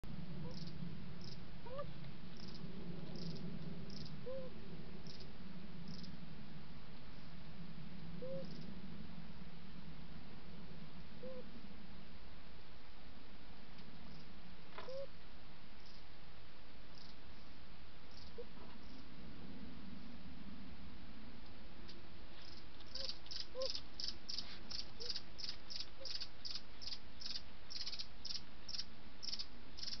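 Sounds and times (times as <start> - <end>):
steady low hum: 0.0 - 30.0
cricket chirping: 0.4 - 6.2, 8.2 - 8.7, 15.8 - 16.1, 16.9 - 19.1, 22.4 - 30.0.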